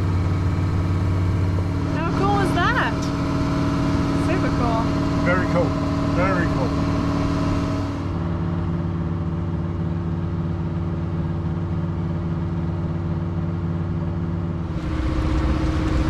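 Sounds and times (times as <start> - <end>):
boat engine running: 0.0 - 16.0.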